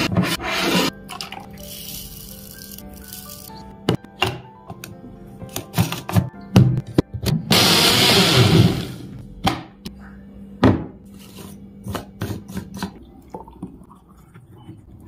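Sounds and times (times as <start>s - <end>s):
mixer grinder blending: 7.5s - 9.2s.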